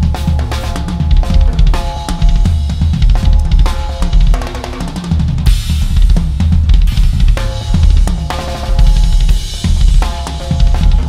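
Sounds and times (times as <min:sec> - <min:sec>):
bass drum hits: 0:00.0 - 0:04.4, 0:05.4 - 0:11.0
ringing tom strokes: 0:07.2 - 0:11.0.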